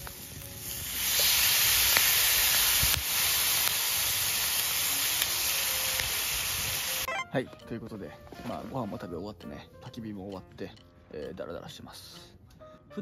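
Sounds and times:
loud sizzling in a pan: 0:00.0 - 0:07.1.

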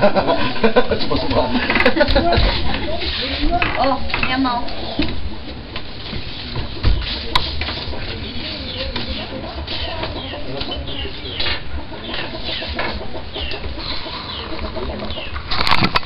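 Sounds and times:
birds chirping: 0:06.4 - 0:15.8.

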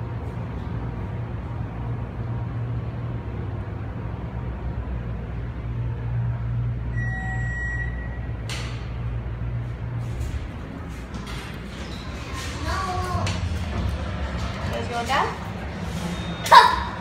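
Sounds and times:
elevator car humming: 0:00.0 - 0:17.0
high electronic beep: 0:06.9 - 0:08.3.

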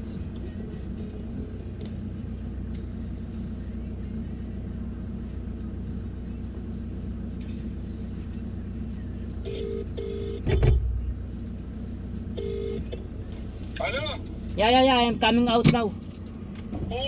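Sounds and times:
car interior rumble: 0:00.0 - 0:17.0
loud thump: 0:10.5 - 0:11.0.

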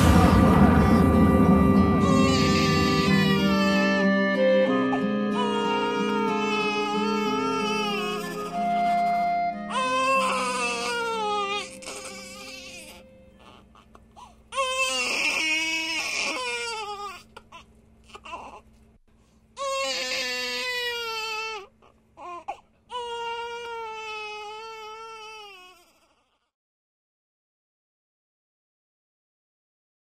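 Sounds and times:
baby crying: 0:01.8 - 0:18.6, 0:19.6 - 0:26.5.

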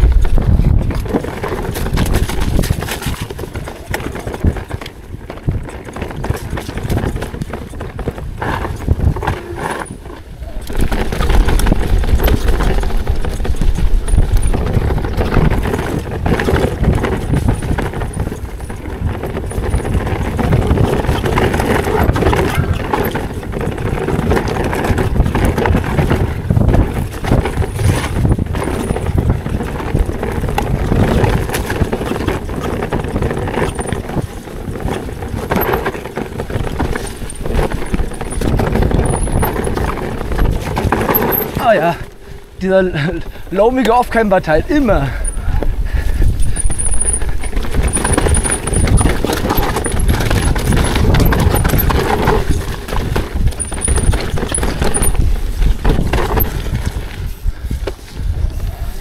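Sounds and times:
steady rushing noise: 0:00.0 - 0:03.7
bike clattering over rocks: 0:00.1 - 0:58.0.

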